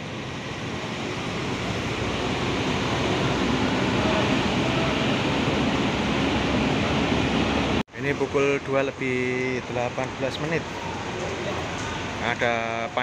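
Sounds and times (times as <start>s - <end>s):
bus engine running: 0.0s - 7.8s.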